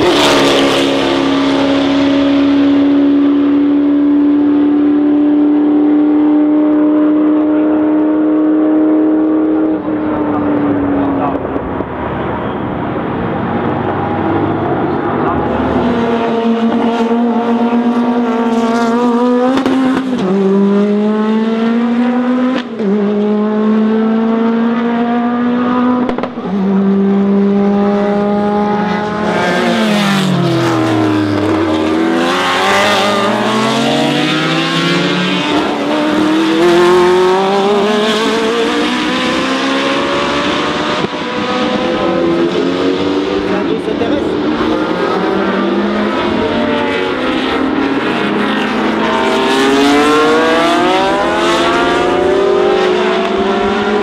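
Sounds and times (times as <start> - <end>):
racing car engine: 0.0 - 54.0.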